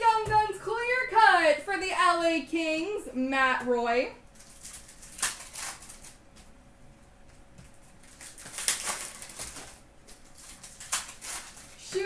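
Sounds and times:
faint steady hum: 0.0 - 12.0
trading cards rustling and snapping: 4.4 - 6.5, 7.6 - 12.0.

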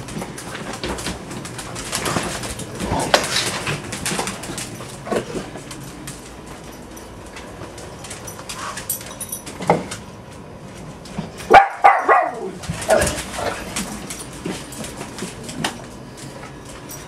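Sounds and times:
dog barking: 11.5 - 12.6.

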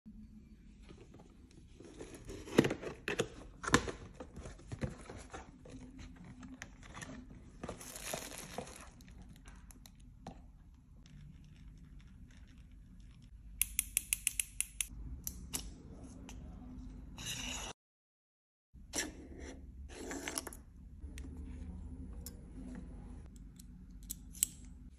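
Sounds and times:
bubble wrap crinkling: 7.1 - 9.7.

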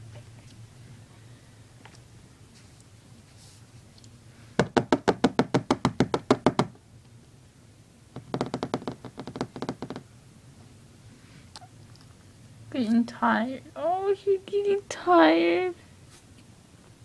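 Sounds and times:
sharp even knocking: 8.2 - 10.0.

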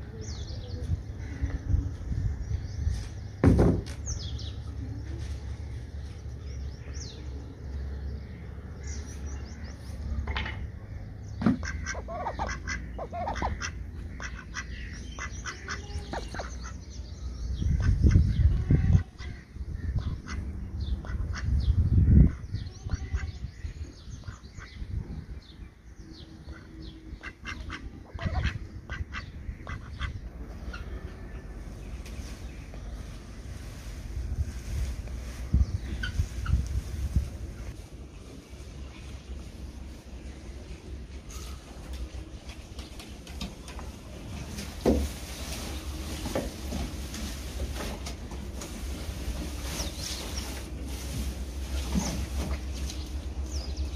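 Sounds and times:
wind rumble on microphone: 0.0 - 5.8, 17.3 - 26.9, 32.2 - 39.0
loud thump: 3.4 - 4.0
ducks quacking: 11.4 - 16.8, 17.7 - 23.4, 26.5 - 31.0
fodder rustling and crackling: 31.6 - 53.8.

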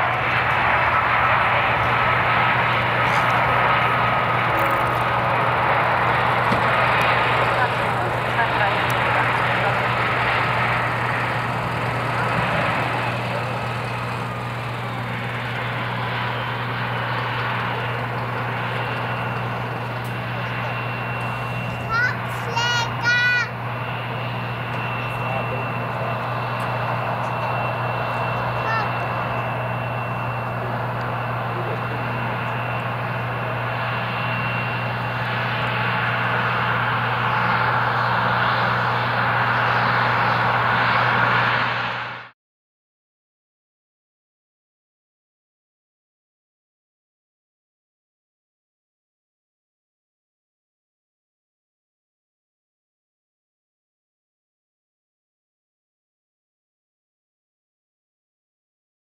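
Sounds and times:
jet engine roar with whine: 0.0 - 42.4.

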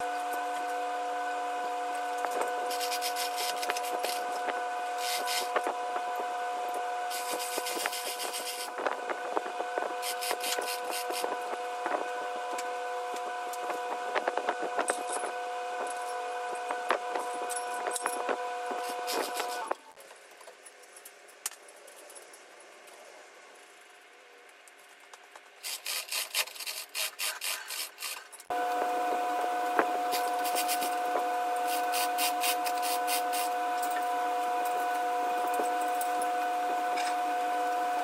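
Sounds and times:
steady droning tone: 0.0 - 19.9, 28.5 - 38.0.

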